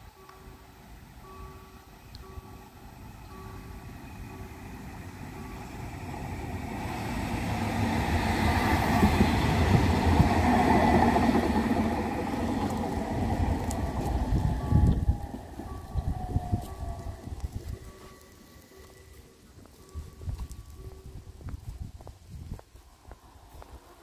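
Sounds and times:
electric tram passing: 0.0s - 24.0s.

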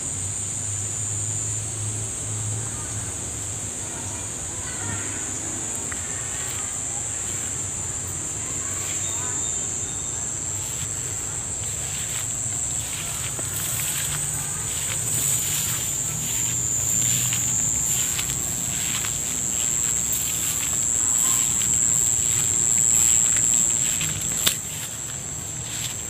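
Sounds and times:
high-pitched insect drone: 0.0s - 26.0s
rice plants rustling: 10.6s - 26.0s.

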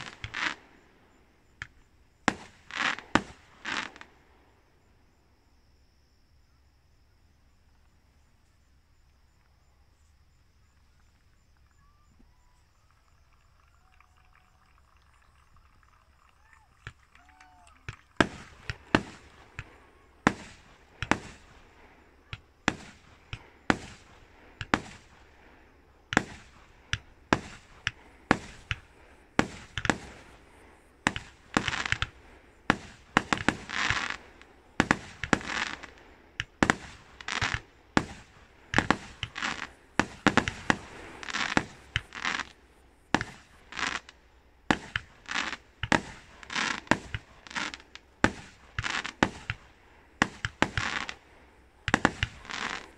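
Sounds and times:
fireworks bangs: 0.0s - 4.9s, 16.0s - 52.9s
fireworks crackling: 0.0s - 5.0s, 10.4s - 52.9s.

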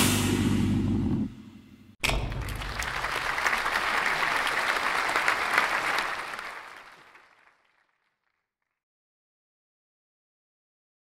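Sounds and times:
audience applauding: 2.1s - 8.2s.

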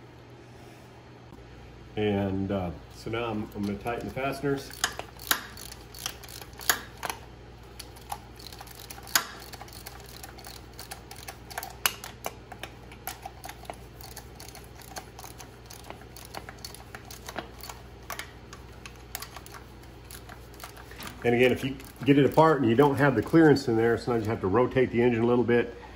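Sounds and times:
socket ratchet clicking: 3.5s - 23.5s.

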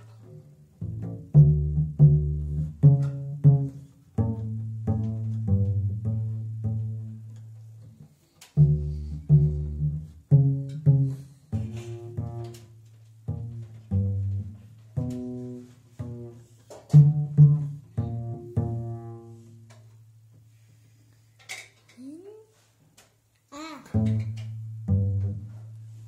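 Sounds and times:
double bass plucked notes: 0.2s - 20.2s, 23.9s - 26.0s.

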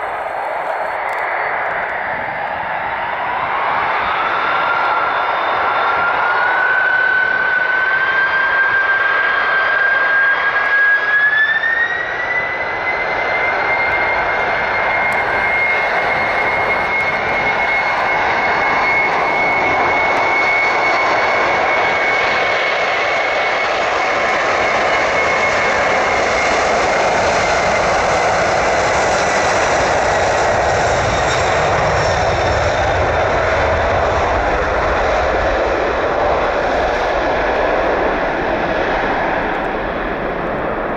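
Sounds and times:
jet engine fan whine: 0.0s - 40.9s
steady jet rush: 14.0s - 20.9s.

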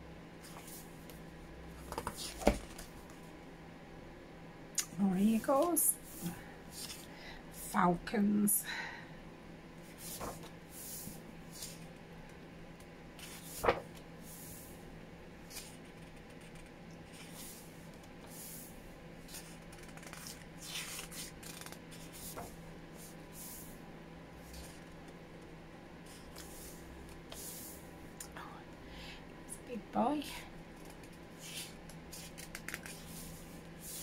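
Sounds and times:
book pages turning: 1.8s - 3.2s, 5.5s - 7.1s, 9.9s - 12.0s, 13.2s - 14.0s, 15.4s - 18.6s, 19.2s - 22.6s, 24.5s - 25.2s, 30.8s - 34.0s.

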